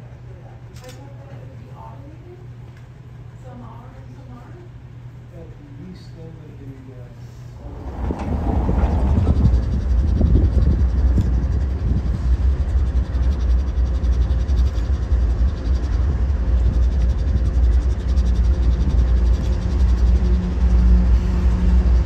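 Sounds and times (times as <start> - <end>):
diesel locomotives idling: 7.4 - 22.0.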